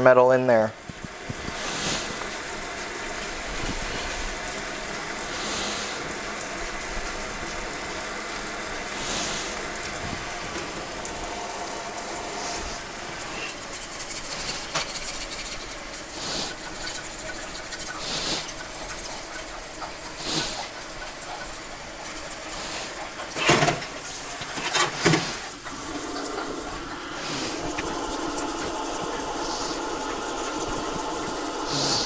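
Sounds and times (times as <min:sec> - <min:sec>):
faucet sprayer running into sink: 0:00.8 - 0:32.0
scrubbing by hand: 0:08.9 - 0:32.0.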